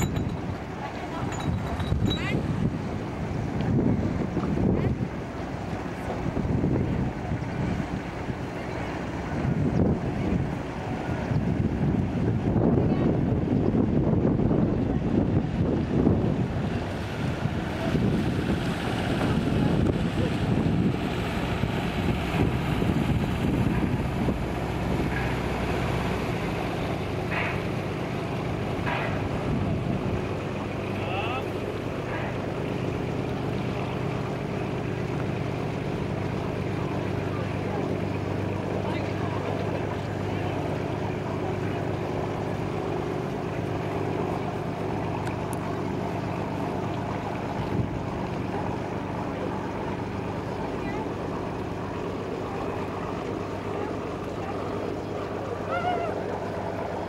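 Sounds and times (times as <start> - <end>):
wind gusting on microphone: 0.0 - 27.3
boat engine hum: 0.0 - 57.0
sea water washing: 0.0 - 57.0.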